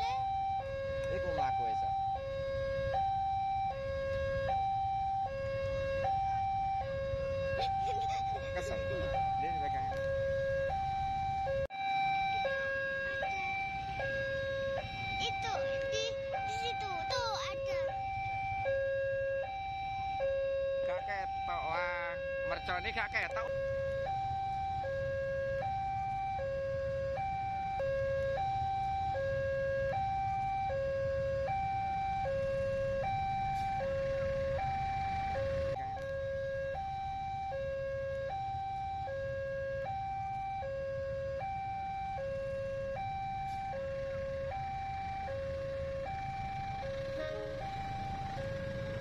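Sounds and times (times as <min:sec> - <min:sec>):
level crossing two-tone alarm: 0:00.0 - 0:49.0
train rumbling over crossing: 0:46.6 - 0:49.0.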